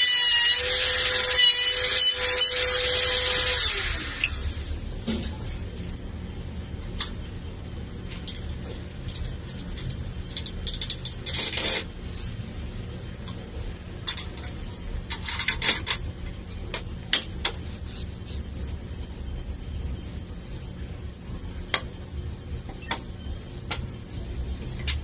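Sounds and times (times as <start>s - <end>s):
steady low hum: 0.6s - 25.0s.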